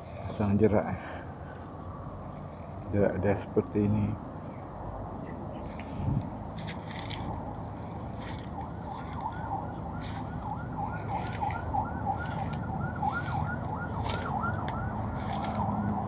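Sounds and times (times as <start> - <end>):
footsteps rustling through leaves: 6.5 - 16.0.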